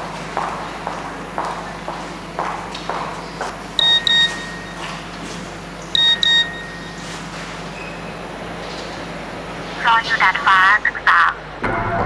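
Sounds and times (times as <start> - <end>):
footsteps on hard floor: 0.0 - 5.6
mobile phone beeping: 3.8 - 5.0, 5.9 - 7.2.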